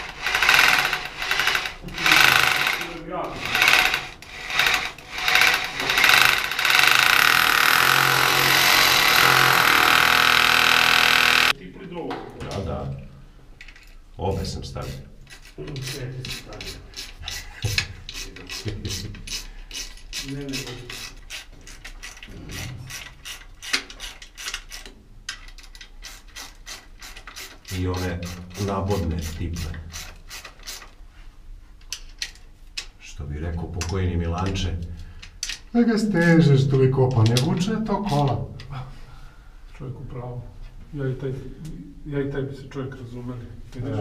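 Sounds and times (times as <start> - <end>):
hammer drill boring into concrete: 0.0 - 11.5
hand ratchet clicking: 0.0 - 11.5, 20.9 - 28.4.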